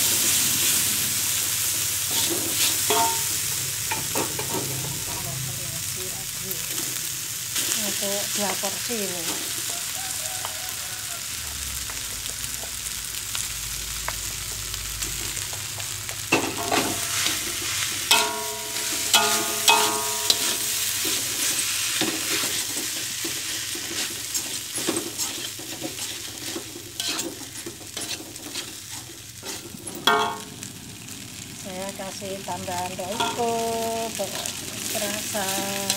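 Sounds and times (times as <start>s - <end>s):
rice sizzling in a wok: 0.0s - 35.9s
spatula scraping a wok: 1.7s - 5.2s, 16.3s - 30.5s, 33.1s - 35.9s.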